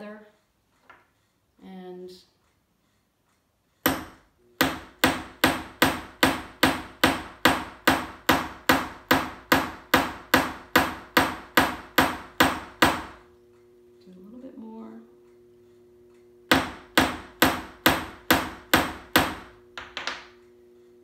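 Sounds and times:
hammer tapping steel punch: 0:03.3 - 0:13.7, 0:15.3 - 0:21.0.

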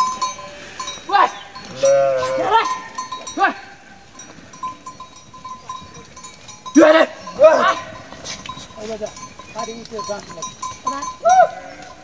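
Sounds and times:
sheep or goats bleating: 0:01.1 - 0:03.8, 0:06.8 - 0:09.2, 0:10.9 - 0:12.0.

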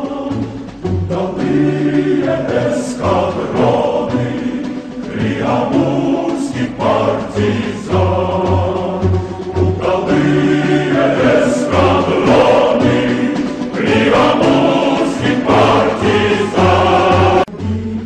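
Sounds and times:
choir singing: 0:00.0 - 0:18.0.

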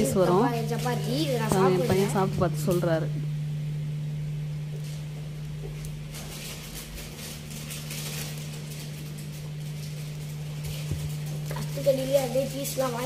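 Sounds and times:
faint rustles and clicks: 0:04.8 - 0:13.0.

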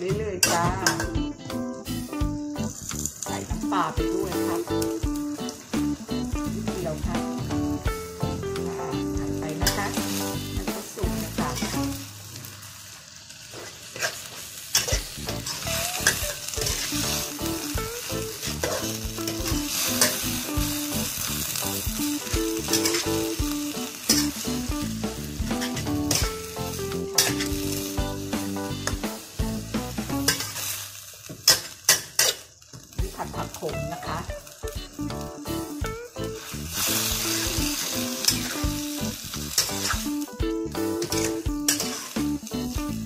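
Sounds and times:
greens sizzling in a wok: 0:00.0 - 0:43.0
metal spatula scraping pan: 0:13.6 - 0:17.3, 0:25.5 - 0:26.3, 0:27.2 - 0:27.8, 0:41.0 - 0:42.2.

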